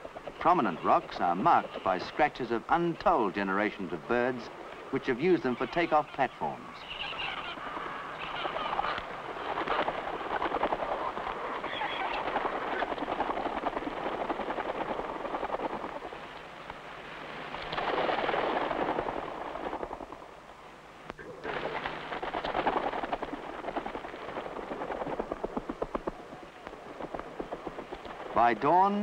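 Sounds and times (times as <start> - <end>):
seabirds cackling in chorus: 0.0 - 13.2.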